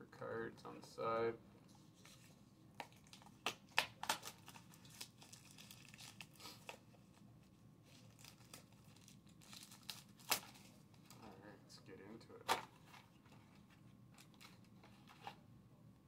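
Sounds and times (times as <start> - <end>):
plastic shrink wrap crinkling: 2.0 - 11.3.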